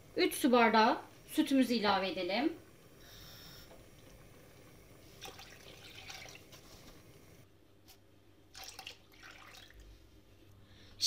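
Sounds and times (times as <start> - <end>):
liquid pouring and splashing: 5.0 - 6.9, 8.5 - 10.0.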